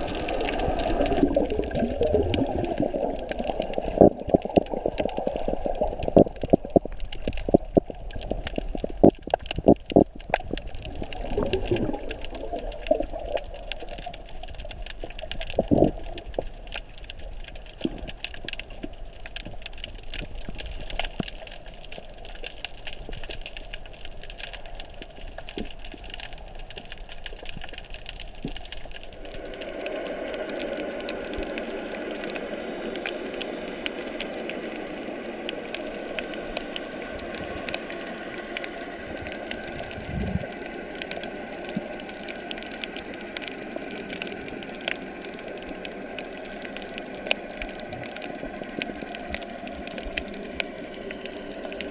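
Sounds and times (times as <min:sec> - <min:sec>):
underwater crackle of tiny clicks: 0:00.0 - 0:51.9.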